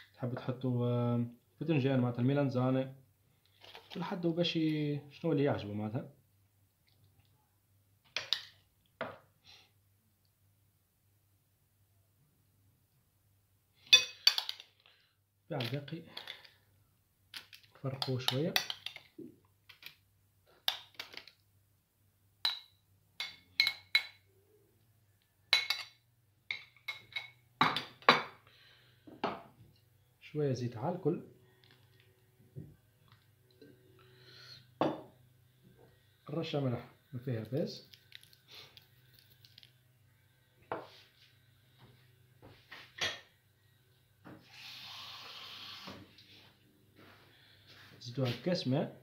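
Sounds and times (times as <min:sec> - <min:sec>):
metal spoon clinking on ceramic plate: 0:13.9 - 0:14.6, 0:22.4 - 0:24.2, 0:25.5 - 0:27.4
steady hiss: 0:44.3 - 0:46.6.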